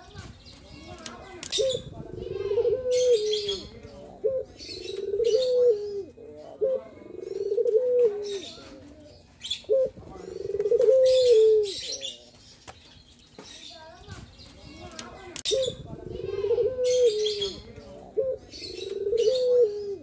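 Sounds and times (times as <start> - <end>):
small birds chirping: 0.0 - 20.0
dove cooing: 1.5 - 12.0, 15.4 - 20.0.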